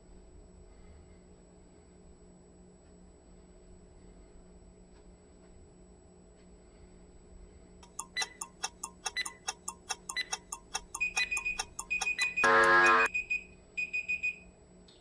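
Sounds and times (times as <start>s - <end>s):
fast clock-like ticking: 7.8s - 12.5s
short high beeps: 11.0s - 13.1s
loud buzzer: 12.1s - 13.2s.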